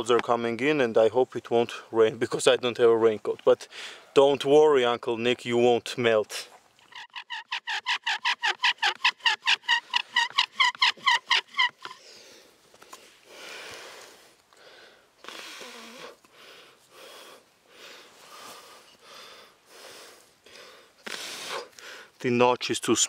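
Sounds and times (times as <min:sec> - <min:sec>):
slow heavy breathing: 0:03.7 - 0:04.1, 0:12.0 - 0:22.2
bow drill spindle squeaking: 0:06.8 - 0:12.0.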